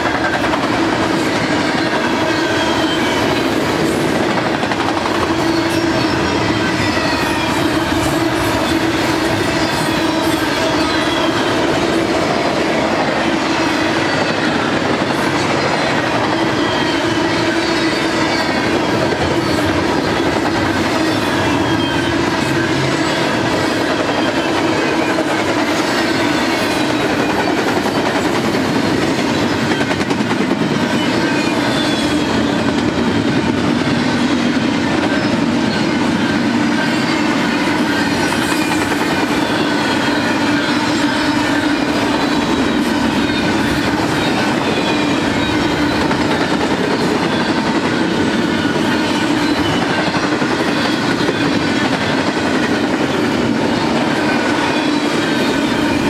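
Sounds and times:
freight train rumbling past: 0.0s - 56.0s
wheel squeals: 15.3s - 25.2s, 25.8s - 32.7s, 35.1s - 52.2s.

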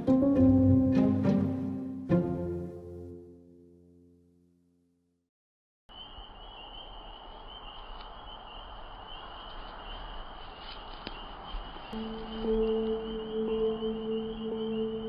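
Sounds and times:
insects chirring: 5.9s - 15.0s.

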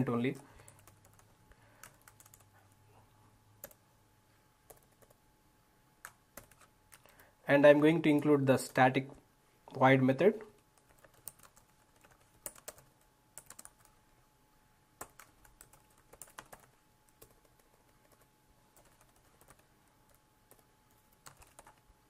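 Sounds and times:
faint keyboard typing: 0.0s - 3.9s, 4.6s - 5.2s, 6.0s - 7.3s, 10.4s - 14.0s, 15.0s - 22.0s.

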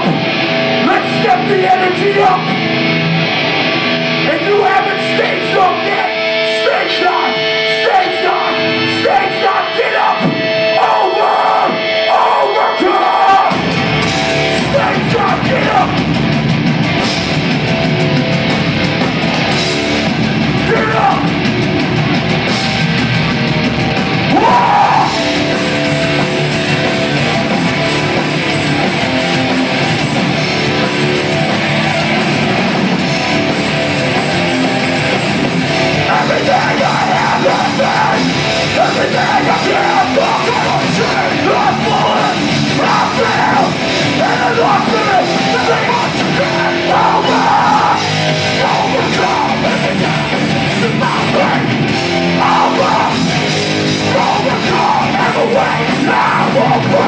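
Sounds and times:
punk band playing live: 0.0s - 57.0s
shouted vocals: 4.2s - 16.2s, 20.6s - 21.5s, 24.1s - 26.2s, 33.4s - 57.0s.

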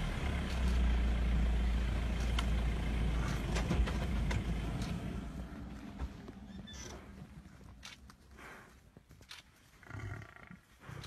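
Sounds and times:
vehicle engine idling: 0.0s - 8.6s.

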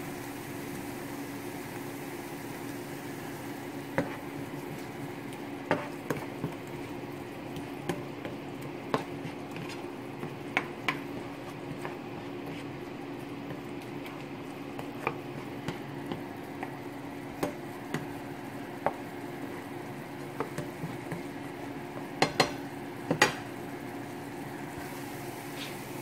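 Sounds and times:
steady low hum: 0.0s - 26.0s
spoon scraping a frying pan: 5.7s - 6.8s, 7.9s - 12.8s.

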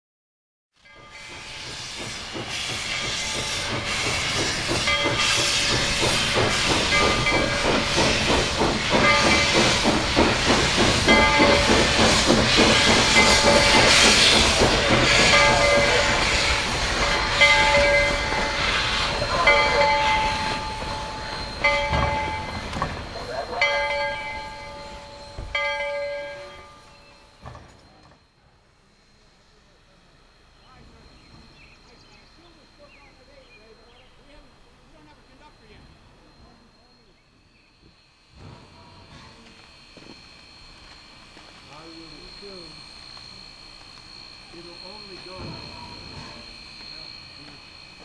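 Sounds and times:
loud steam hissing: 0.9s - 48.0s
steam locomotive exhaust chuffs: 0.9s - 48.0s
bell ringing: 17.4s - 27.3s.

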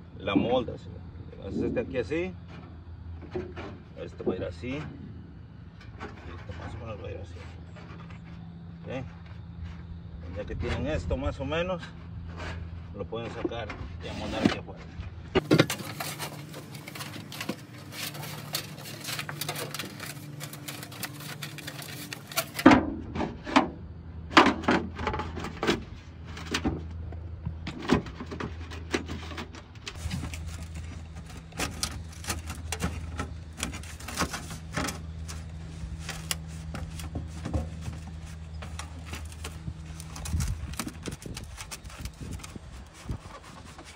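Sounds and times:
steady low hum: 0.0s - 43.9s
metal flashing crinkling and tapping: 15.4s - 22.7s.

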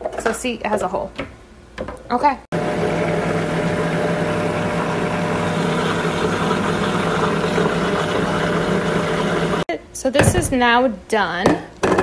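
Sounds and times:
blender whirring: 2.6s - 9.7s.

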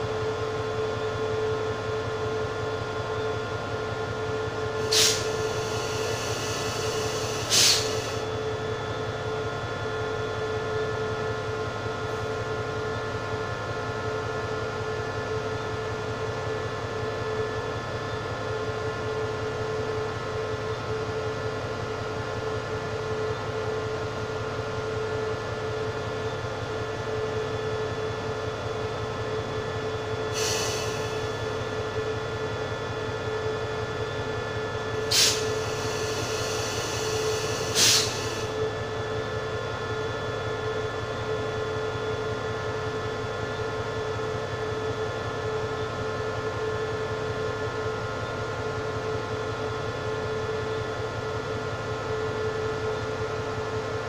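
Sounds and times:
short air hisses: 4.8s - 8.2s, 30.4s - 31.1s, 35.1s - 38.5s.

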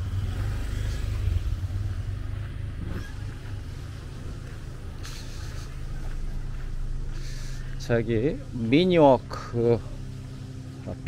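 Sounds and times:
car driving past: 0.0s - 11.0s.

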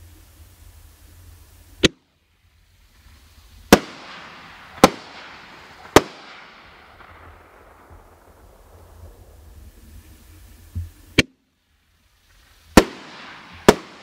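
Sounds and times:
firework shell bangs: 3.7s - 8.0s.

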